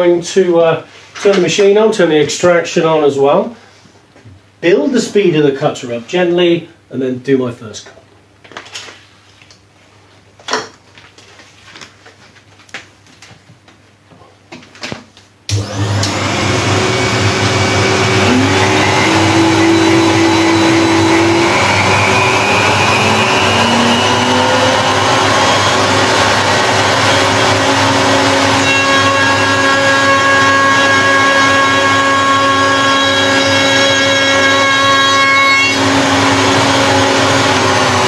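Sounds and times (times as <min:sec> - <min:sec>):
dust extractor rushing: 0:15.5 - 0:34.5, 0:35.8 - 0:38.0
router motor whine rising: 0:15.5 - 0:35.0, 0:35.7 - 0:38.0.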